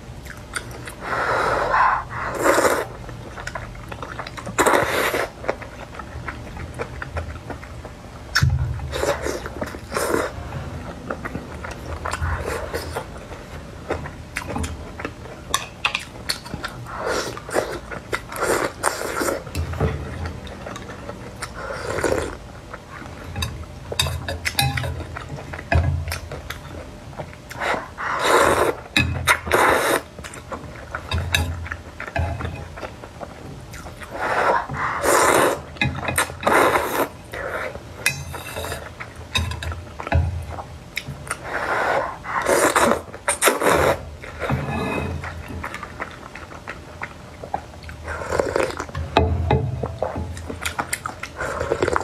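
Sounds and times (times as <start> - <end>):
slurping noodles: 1.0 - 3.0, 27.6 - 28.8, 29.5 - 30.1, 34.0 - 35.7, 41.4 - 45.2.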